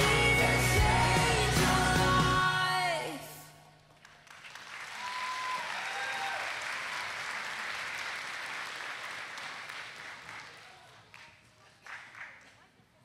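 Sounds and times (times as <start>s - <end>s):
audience applauding: 3.9s - 12.4s.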